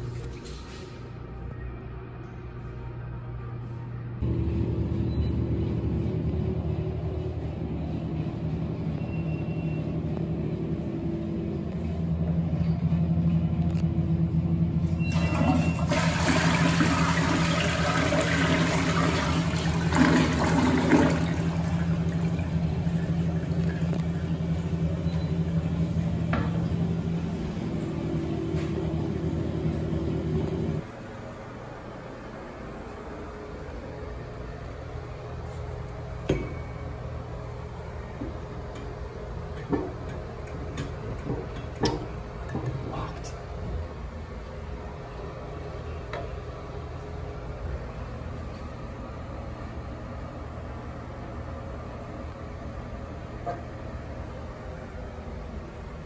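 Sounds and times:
steady low hum: 0.0 - 56.0
toilet flushing: 14.9 - 30.8.

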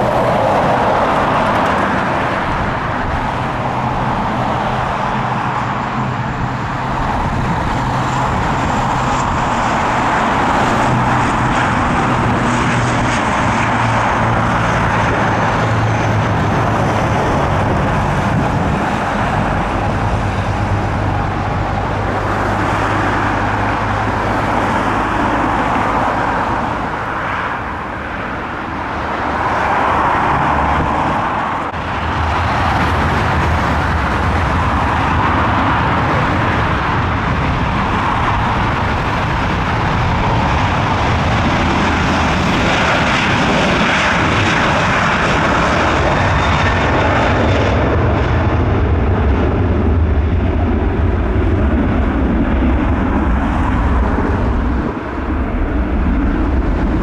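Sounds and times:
turboprop airliner taking off: 0.0 - 57.0.

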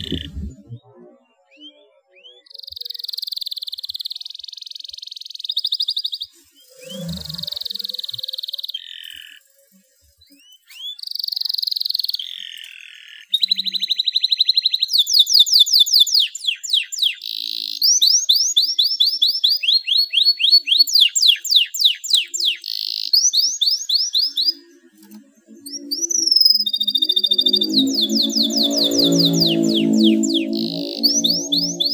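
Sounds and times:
canary singing trills: 10.3 - 31.9.

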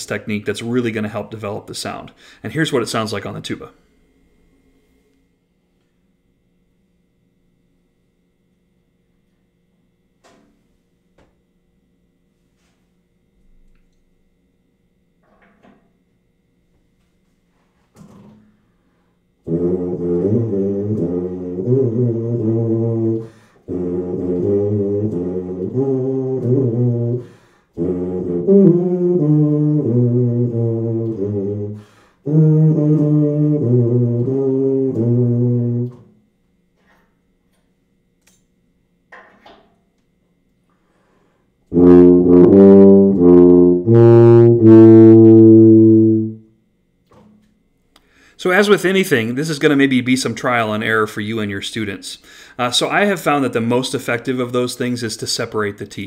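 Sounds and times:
tuba playing low notes: 19.4 - 36.2, 41.7 - 46.5.

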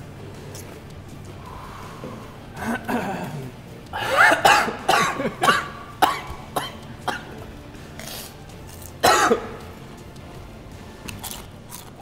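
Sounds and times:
man coughing: 2.6 - 7.4, 9.0 - 9.6.

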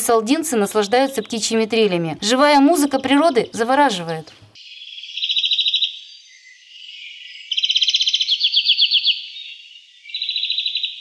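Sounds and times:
songbird singing rapid trills: 4.6 - 11.0.

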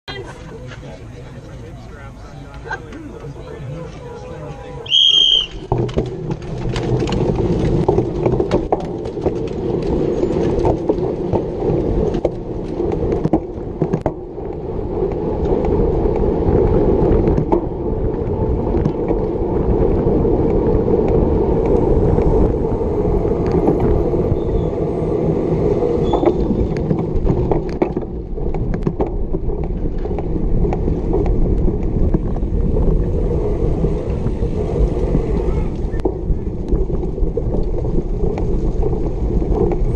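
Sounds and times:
bike tyre rumble: 0.1 - 39.9
wind buffeting microphone: 3.2 - 39.9
bike rattling clicks: 4.9 - 14.1.

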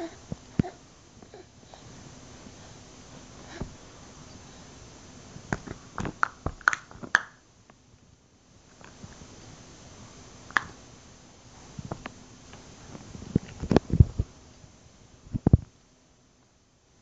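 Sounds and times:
hands slapping a padded cushion: 5.5 - 7.3.

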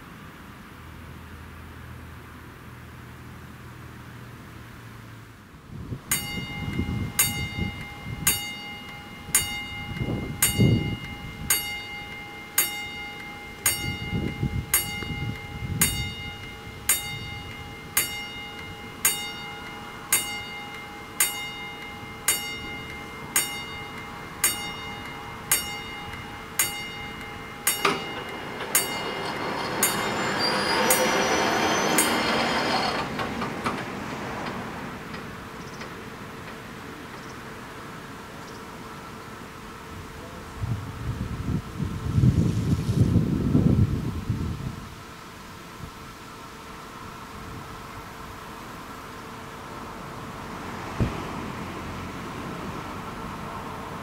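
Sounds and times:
level-crossing bell ringing: 6.1 - 33.2.

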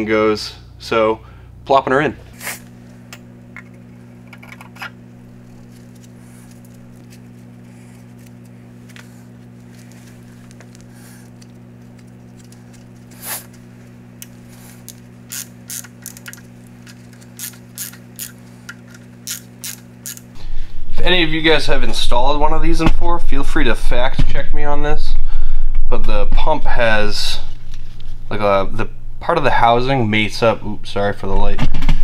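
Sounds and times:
steady low hum: 0.0 - 32.0
hand ratchet clicking: 14.8 - 20.3.

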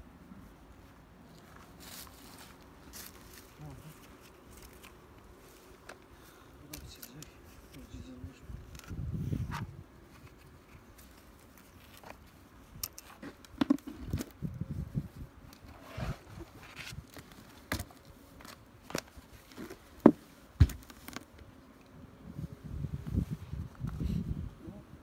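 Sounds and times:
footsteps on sawdust: 1.3 - 5.8.

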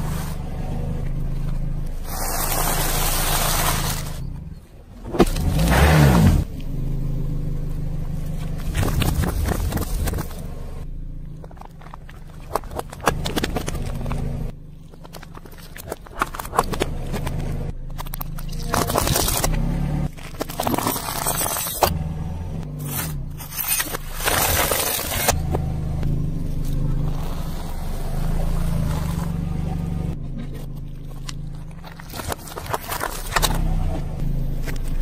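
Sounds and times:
car engine at low revs: 0.0 - 35.0
tyre crushing plastic objects: 8.6 - 10.5, 11.4 - 22.0, 22.8 - 25.6, 30.3 - 33.8.

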